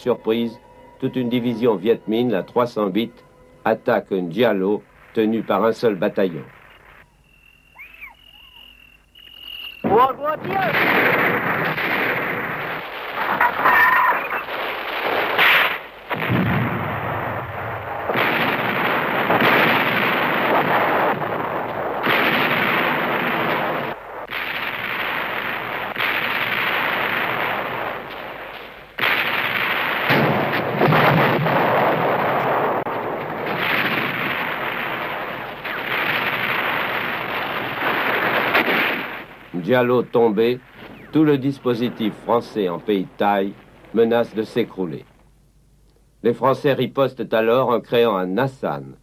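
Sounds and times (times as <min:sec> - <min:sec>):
shell explosions: 0:09.4 - 0:45.2
artillery fire: 0:09.6 - 0:44.6
gunfire: 0:09.8 - 0:39.5.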